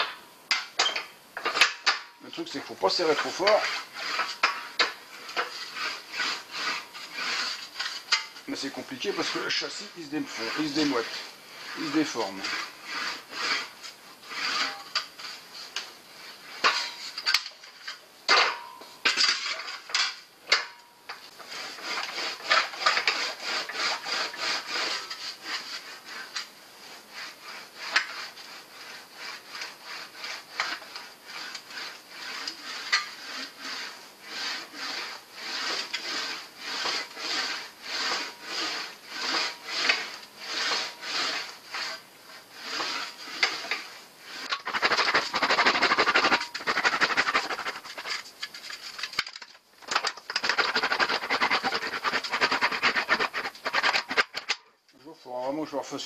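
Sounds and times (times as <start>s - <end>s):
sheet metal rubbing rasp: 0.0s - 55.7s.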